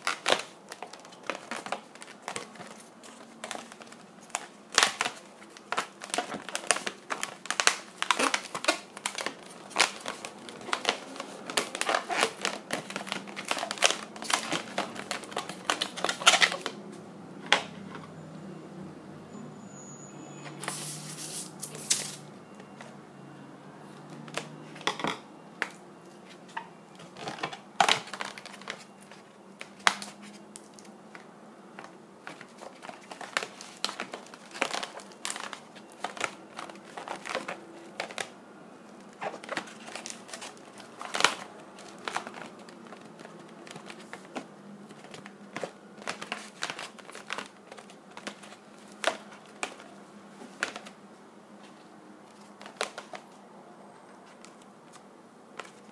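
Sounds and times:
balloon rubbing and crinkling: 6.1s - 16.6s, 20.6s - 22.2s.

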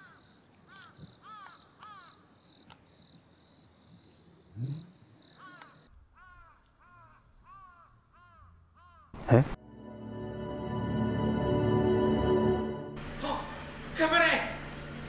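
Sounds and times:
crow cawing: 0.0s - 2.3s, 5.3s - 9.2s
high whine: 9.6s - 15.0s.

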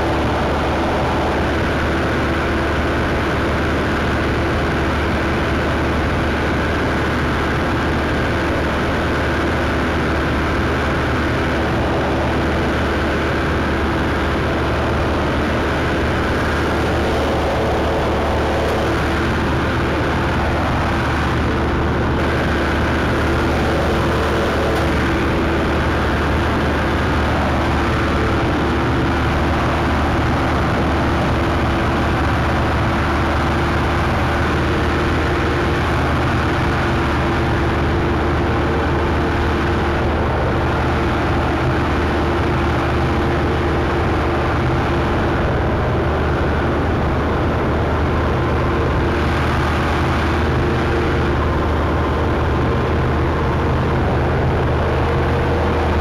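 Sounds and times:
combine harvester running: 0.0s - 56.0s.

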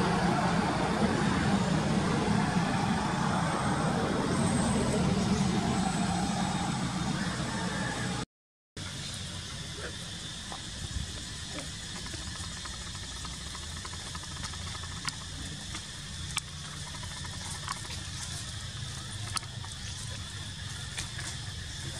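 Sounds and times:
low rumble: 0.0s - 8.2s
even hiss: 8.8s - 21.9s.

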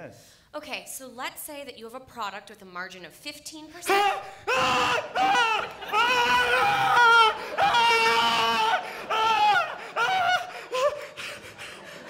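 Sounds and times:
man screaming in terror: 3.9s - 11.0s.

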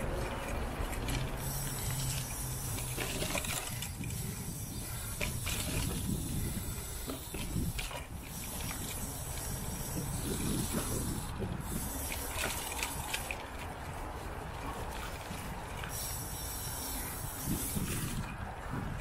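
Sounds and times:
freewheel ratcheting: 0.0s - 13.7s
bike rattling over bumps: 0.0s - 19.0s
bike tyres rolling on dirt: 0.0s - 19.0s
steady hiss: 15.9s - 18.2s.

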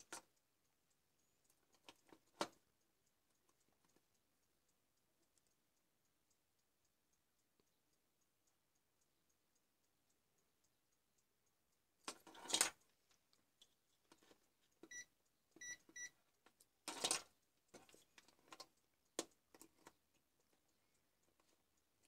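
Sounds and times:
multimeter beeps: 14.9s - 16.2s.

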